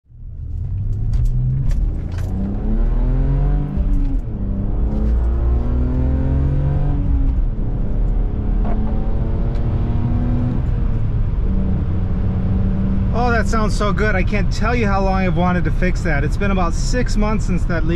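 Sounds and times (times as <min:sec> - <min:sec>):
car engine accelerating through gears: 0:00.2 - 0:13.9
person speaking: 0:13.1 - 0:17.9.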